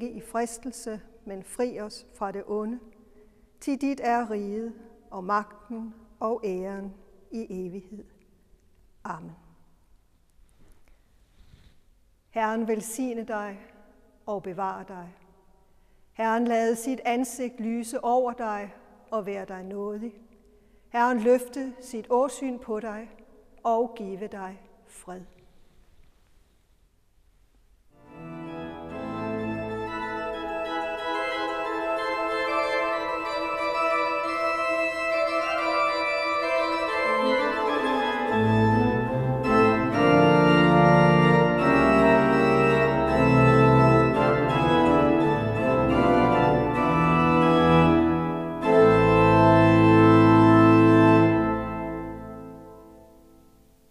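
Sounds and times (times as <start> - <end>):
pipe organ playing: 28.0 - 53.2.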